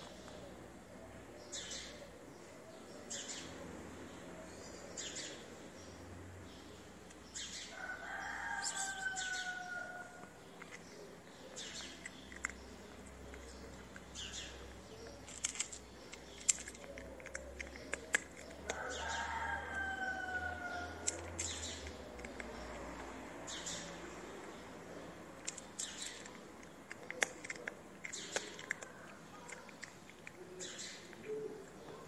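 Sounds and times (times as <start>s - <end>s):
rooster crowing: 7.7s - 10.3s, 18.8s - 21.0s.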